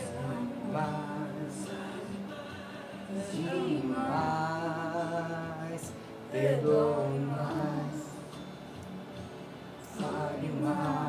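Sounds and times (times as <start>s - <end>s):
person singing long notes: 0.0s - 8.4s
music: 0.0s - 11.0s.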